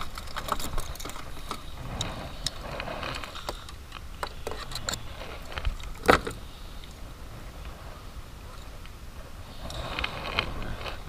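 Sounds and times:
fishing pliers clicking and clattering: 0.0 - 1.6.

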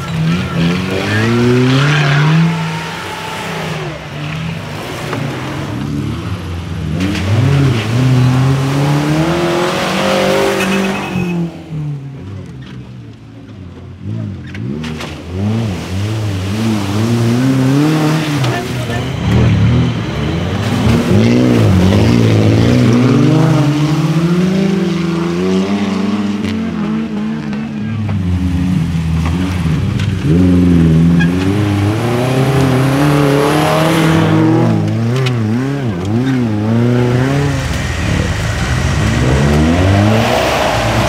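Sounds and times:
suv engine revving hard: 30.2 - 41.0.

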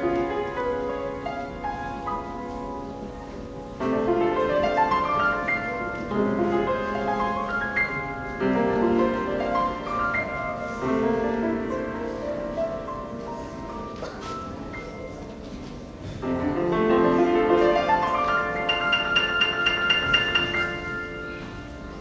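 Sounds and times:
grand piano playing: 0.0 - 22.0.

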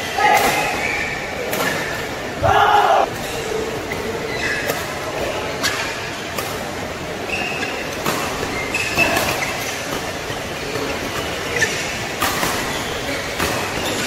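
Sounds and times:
large hall noise: 0.0 - 14.0
shoes squeaking on court: 7.3 - 14.0.

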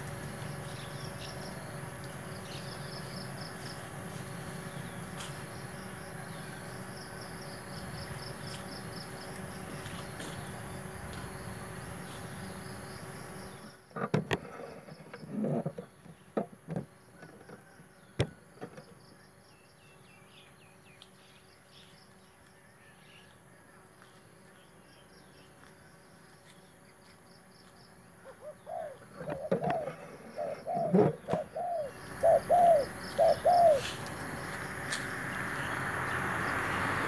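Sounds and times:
dove cooing: 28.2 - 34.0.

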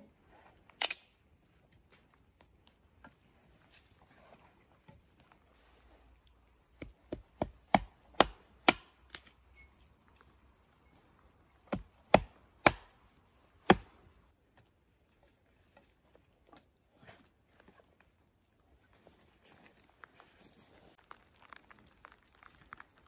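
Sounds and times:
hatchet chopping wood: 6.8 - 9.3, 11.6 - 13.0, 13.6 - 14.0.

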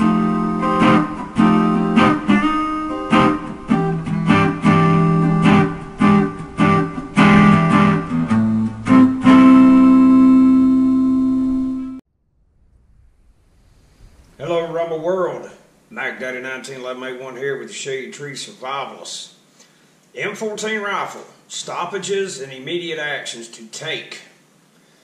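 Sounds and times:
strummed guitar chords: 0.0 - 12.0.

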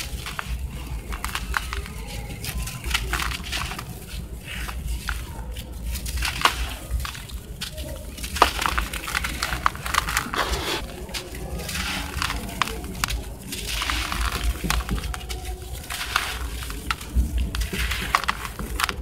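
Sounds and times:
hands crushing dry cement lumps: 0.0 - 19.0
grit pouring into bucket: 8.2 - 19.0.

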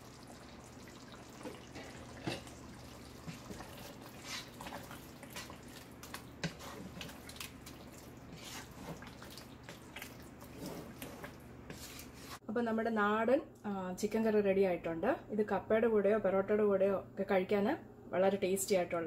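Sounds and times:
spatula stirring thick curry: 0.1 - 12.4.

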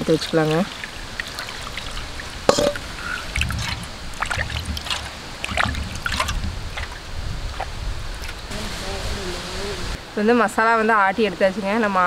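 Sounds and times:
water sloshing in stone grinder: 0.0 - 8.4.

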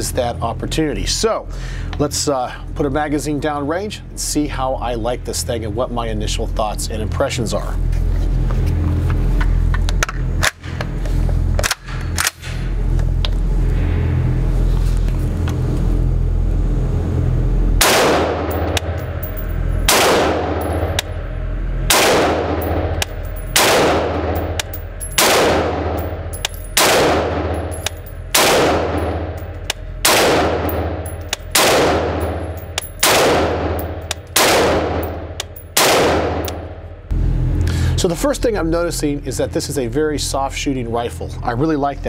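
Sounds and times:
rifle shots echoing indoors: 17.8 - 21.2, 21.8 - 37.0.

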